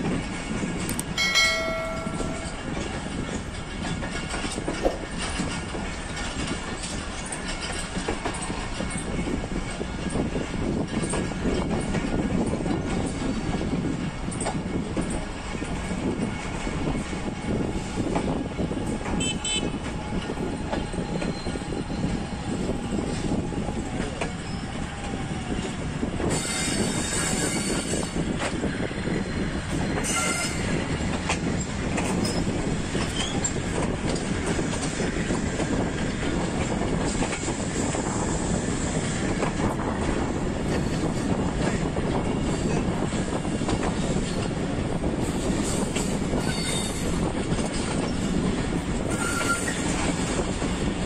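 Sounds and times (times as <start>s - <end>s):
train wheels rumbling on rails: 0.0s - 51.0s
high-pitched wheel squeals: 20.5s - 23.3s, 29.2s - 30.9s, 46.3s - 47.2s, 49.1s - 50.0s.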